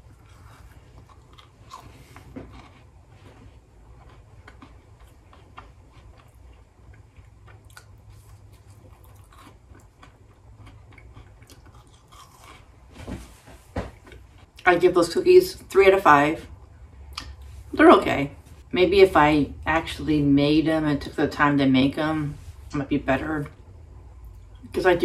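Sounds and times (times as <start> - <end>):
person chewing: 0.0 - 12.9
steady low hum: 0.0 - 25.0.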